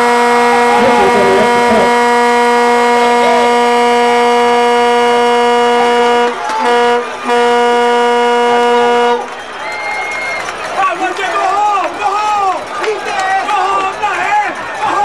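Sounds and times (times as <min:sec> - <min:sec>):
horn blowing long note: 0:00.0 - 0:09.3.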